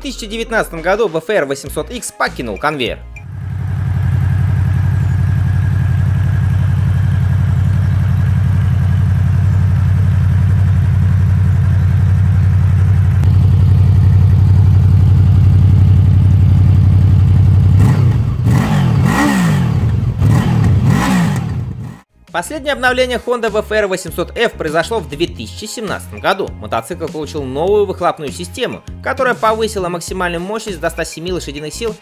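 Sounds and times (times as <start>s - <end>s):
motorcycle engine idling and revving: 3.2s - 22.1s.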